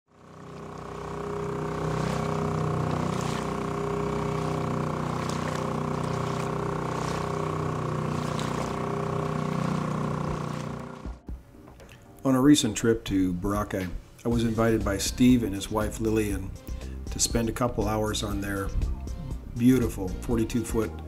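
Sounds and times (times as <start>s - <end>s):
boat engine droning: 0.1s - 11.5s
water hissing: 0.4s - 11.1s.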